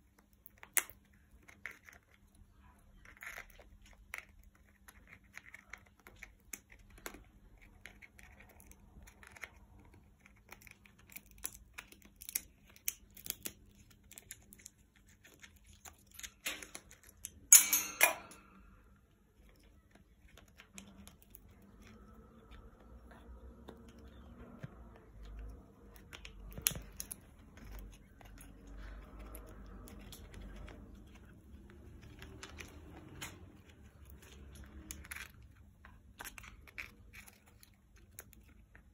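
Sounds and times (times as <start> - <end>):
parrot cracking nut shell with beak: 0.4 - 2.1.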